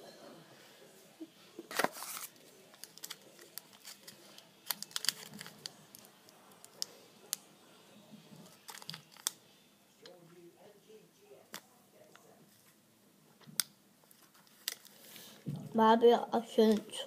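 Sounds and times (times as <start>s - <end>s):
sweet wrapper crinkling: 1.7s - 7.4s, 8.4s - 9.4s, 14.0s - 15.2s.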